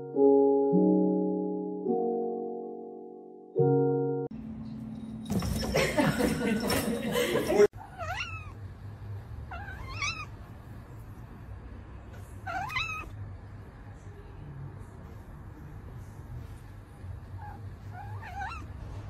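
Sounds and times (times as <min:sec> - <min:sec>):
cat meowing: 0:07.8 - 0:08.6, 0:09.5 - 0:10.4, 0:12.4 - 0:13.1, 0:17.4 - 0:18.7.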